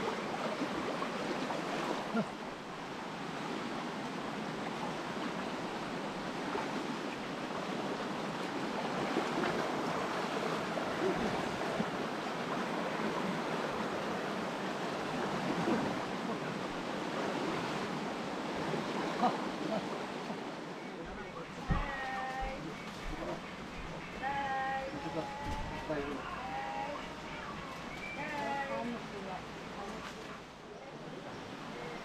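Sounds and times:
river water rushing: 0.0s - 32.0s
small water splashes: 4.9s - 19.7s.

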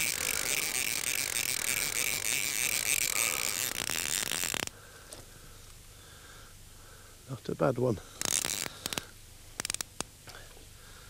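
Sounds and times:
fly reel ratchet clicking: 0.0s - 4.8s, 8.1s - 10.1s.

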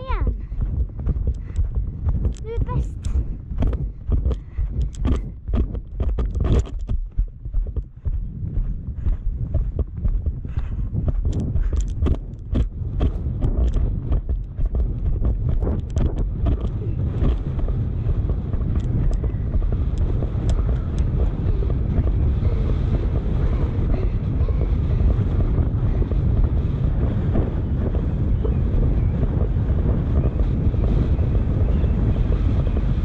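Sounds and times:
hoofbeat clicks: 0.0s - 24.0s
wind buffeting microphone: 0.0s - 33.0s.

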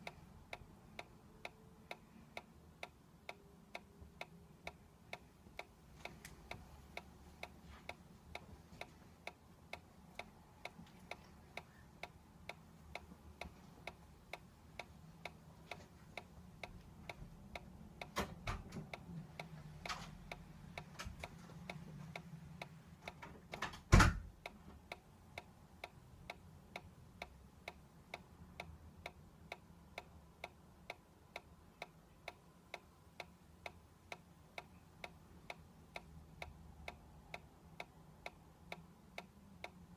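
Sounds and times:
toy mechanism ticking: 0.0s - 23.7s.

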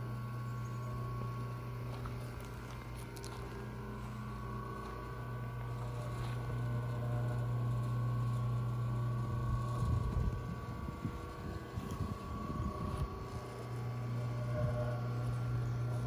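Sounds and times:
pump jack machine hum: 0.0s - 16.0s
wind rumble on microphone: 9.2s - 13.7s.

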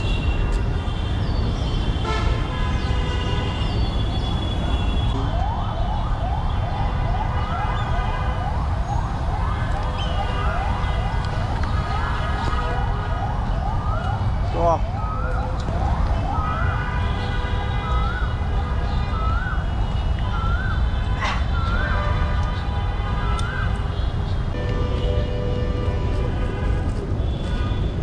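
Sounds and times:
low rumble of traffic: 0.0s - 28.0s
siren wailing: 5.2s - 16.9s, 17.8s - 22.3s.

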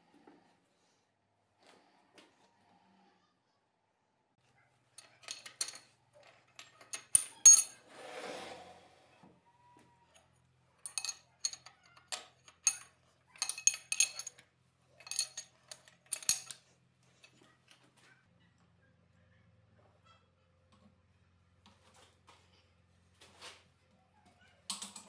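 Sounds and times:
metal clinks and knocks: 5.0s - 7.8s, 10.8s - 14.4s, 15.0s - 17.4s, 24.7s - 25.0s.

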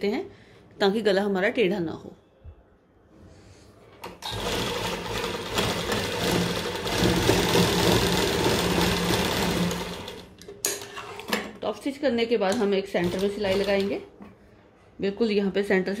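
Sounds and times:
sewing machine running: 4.2s - 10.3s, 13.0s - 14.0s.

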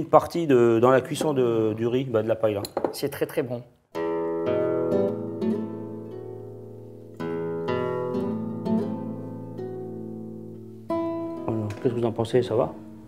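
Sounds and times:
plucked string chords: 4.0s - 13.0s.

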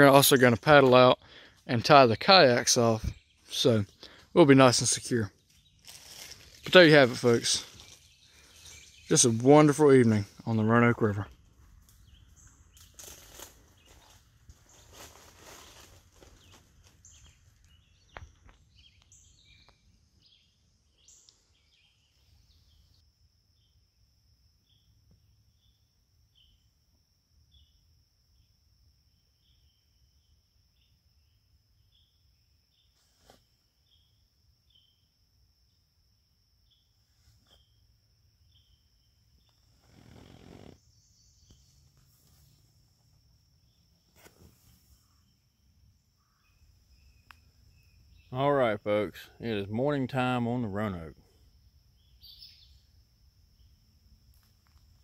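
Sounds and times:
insects trilling: 0.0s - 55.0s
short insect chirps: 4.9s - 9.5s, 11.3s - 49.6s, 51.3s - 55.0s
brief rustle: 44.1s - 45.0s.

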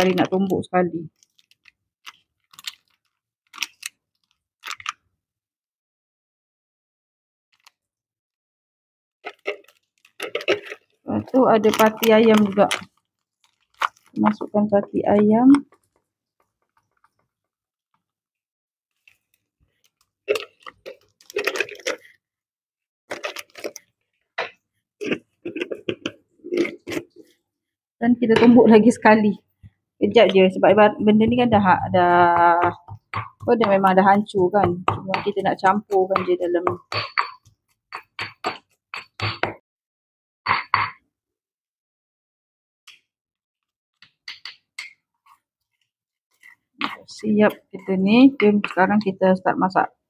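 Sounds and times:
wooden spoon scraping stone: 9.3s - 14.4s, 24.4s - 27.4s
stone pestle pounding in mortar: 30.8s - 39.6s.

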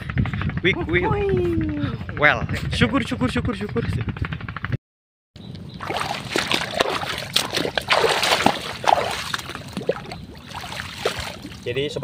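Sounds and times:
water splashing and sloshing: 5.6s - 12.0s.

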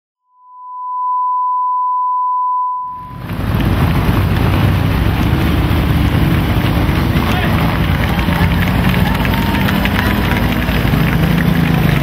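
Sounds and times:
steady test tone: 0.3s - 7.2s
outdoor noise with low rumble: 2.9s - 12.0s.

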